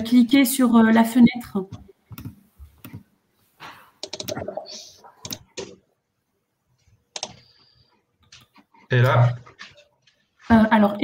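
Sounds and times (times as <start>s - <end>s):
keyboard and mouse clicks: 1.7s - 3.1s, 4.0s - 5.8s, 7.1s - 8.8s.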